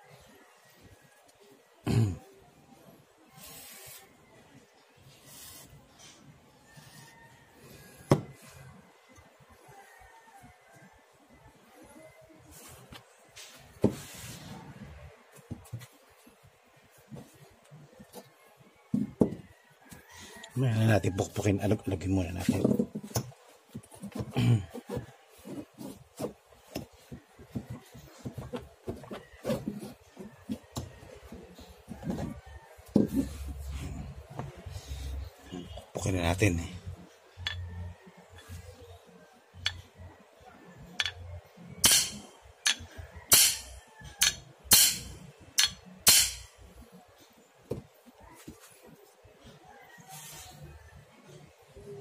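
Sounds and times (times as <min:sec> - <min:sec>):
metal-on-metal rubbing: 0:41.0 - 0:41.2, 0:41.8 - 0:46.5
hammer striking metal: 0:41.8 - 0:46.5.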